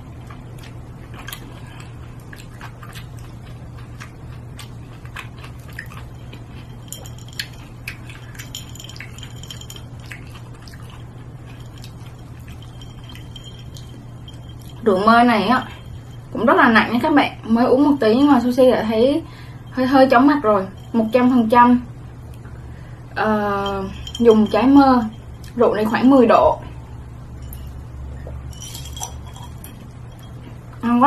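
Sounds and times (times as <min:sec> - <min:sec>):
chewing and wet mouth noises: 0:00.0 - 0:14.9
steady low hum: 0:00.0 - 0:31.0.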